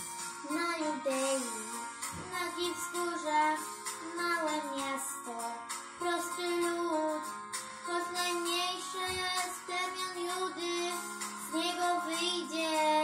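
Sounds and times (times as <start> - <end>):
instrumental accompaniment: 0.0 - 13.0
girl singing with vibrato: 0.4 - 13.0.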